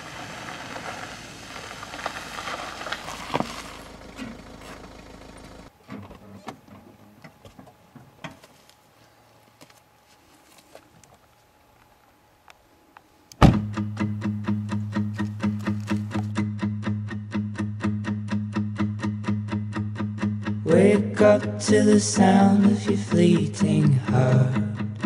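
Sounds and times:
guitar rhythmic strumming: 0:13.6 - 0:25.0.

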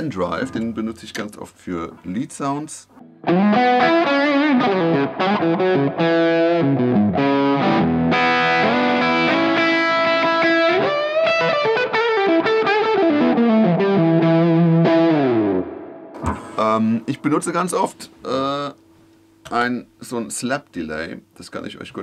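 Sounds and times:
overdriven electric guitar lead: 0:03.0 - 0:17.2.

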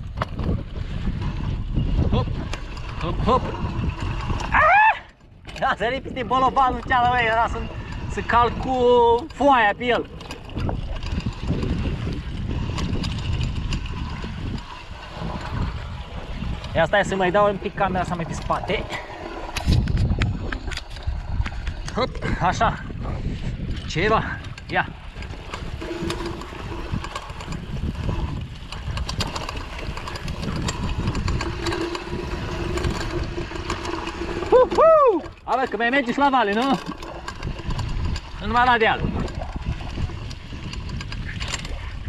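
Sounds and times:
bicycle tyre rumble: 0:00.0 - 0:42.0
bike rattling on stones: 0:00.0 - 0:42.0
wind buffeting microphone: 0:00.0 - 0:42.0
steady whine: 0:24.9 - 0:37.6.

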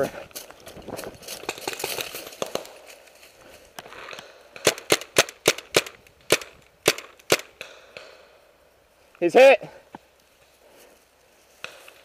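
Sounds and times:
rustling through dry leaves: 0:00.0 - 0:04.2
paintball marker firing pops: 0:01.6 - 0:02.8, 0:04.0 - 0:08.2.

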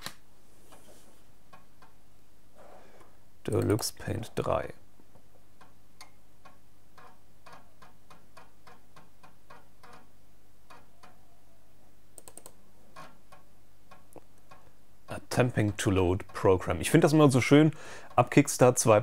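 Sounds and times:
mouse clicks: 0:12.2 - 0:12.6.

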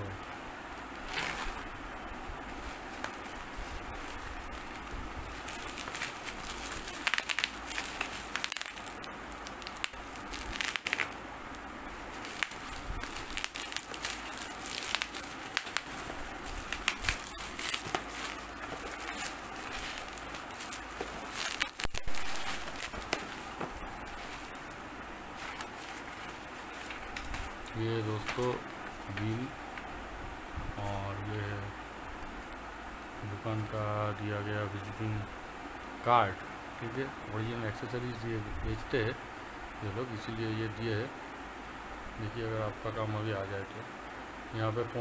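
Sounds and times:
bubble-wrap mailer crinkling: 0:01.1 - 0:01.7, 0:02.6 - 0:11.2, 0:12.0 - 0:29.5.

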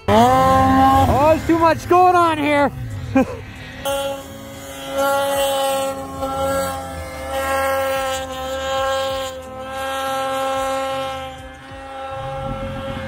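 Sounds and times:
snowmobile engine at high revs: 0:00.0 - 0:13.0.

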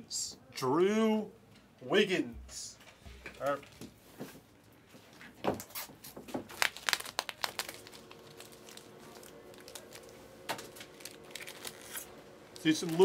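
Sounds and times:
foil card packs crinkling: 0:05.6 - 0:13.0.

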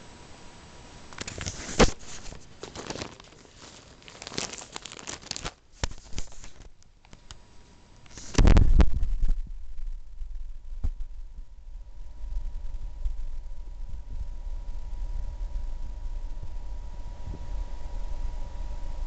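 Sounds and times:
plastic bag crinkling: 0:01.1 - 0:07.4.

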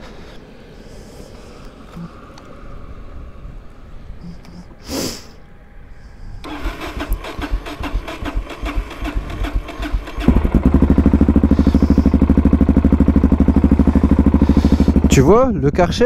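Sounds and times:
motorcycle engine starting and idling: 0:06.4 - 0:16.0.

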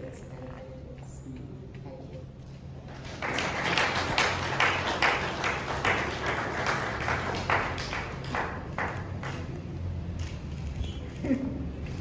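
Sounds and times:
small group applauding: 0:02.9 - 0:09.8.

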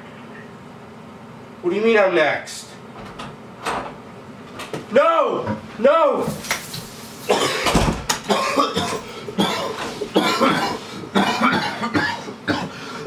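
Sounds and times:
man coughing hard: 0:07.3 - 0:13.0.

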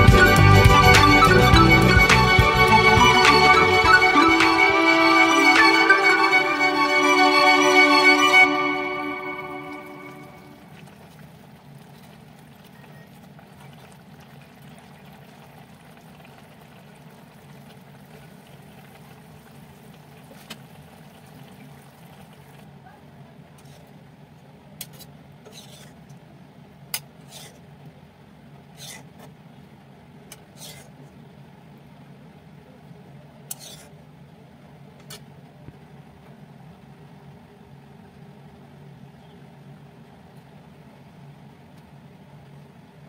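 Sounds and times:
curry bubbling and hissing: 0:10.6 - 0:22.8, 0:28.7 - 0:29.2.

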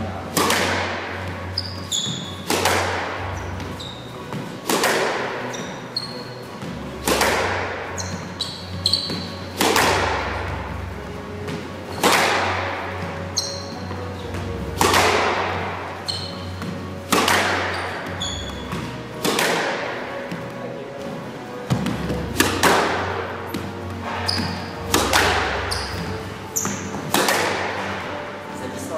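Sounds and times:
squash ball struck with racquet: 0:00.0 - 0:28.5
background music: 0:00.0 - 0:28.9
shoe squeaks on court: 0:01.4 - 0:06.8, 0:07.9 - 0:10.0, 0:13.0 - 0:14.9, 0:16.0 - 0:19.4, 0:23.8 - 0:27.1.

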